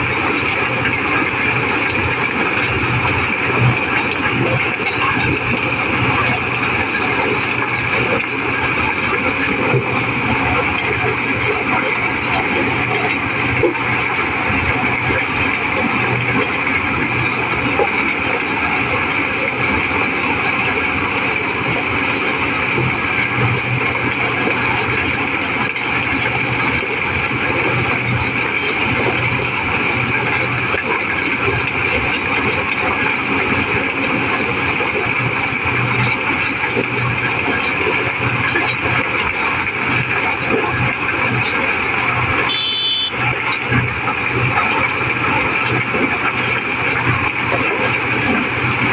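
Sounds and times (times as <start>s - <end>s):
corn sheller engine running: 0.0s - 48.9s.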